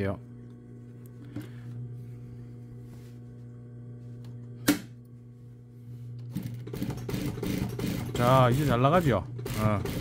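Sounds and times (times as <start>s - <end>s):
sewing machine motor humming: 6.2s - 10.0s.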